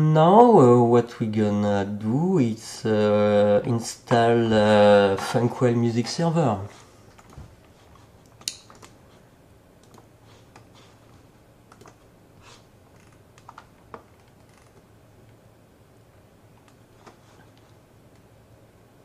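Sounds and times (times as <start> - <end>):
faint room hum: 0.0 - 19.0
keyboard and mouse clicks: 8.2 - 9.0, 9.8 - 10.7, 11.7 - 12.0, 12.9 - 14.9.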